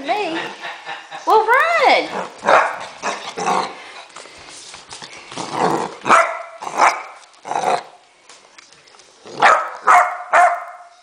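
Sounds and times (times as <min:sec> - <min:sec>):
puppy barking: 0:02.4 - 0:03.2, 0:06.0 - 0:07.2, 0:09.4 - 0:11.0.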